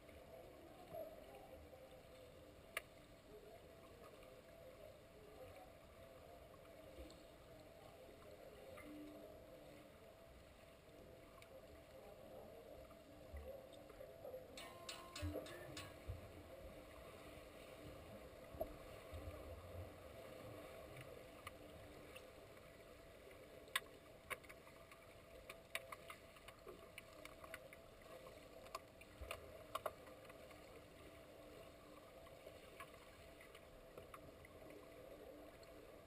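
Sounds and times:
low underwater hum: 0.0 - 36.0
sharp underwater clicks and taps: 14.6 - 16.2.

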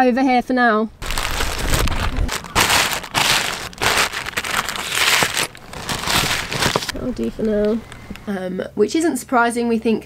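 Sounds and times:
plastic bag crinkling: 1.0 - 8.4.

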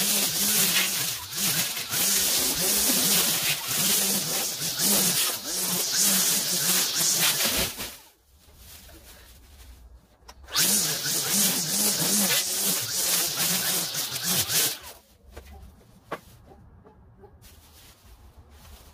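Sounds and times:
string trimmer cutting grass: 0.0 - 8.0, 10.5 - 15.0.

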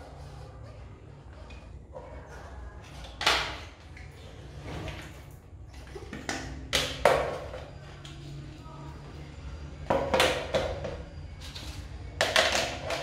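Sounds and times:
plastic parts clicking and knocking: 9.9 - 13.0.

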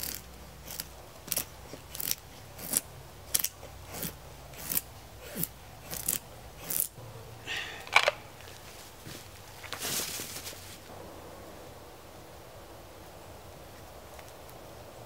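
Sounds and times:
knife scraping wood: 0.0 - 7.0.

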